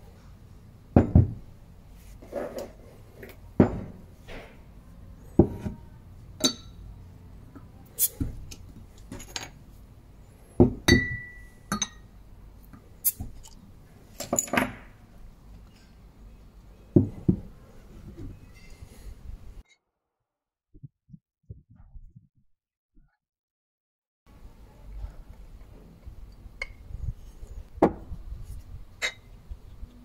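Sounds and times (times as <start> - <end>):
glassware knocking on wooden table: 1.0 - 1.4.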